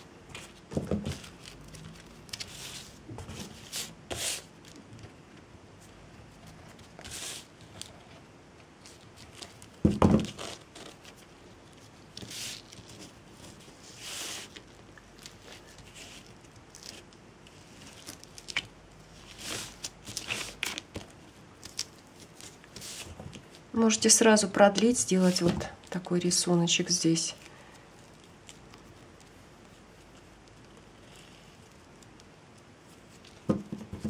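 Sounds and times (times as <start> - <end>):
twine rustling and scraping: 0.3 - 4.8, 22.1 - 32.1.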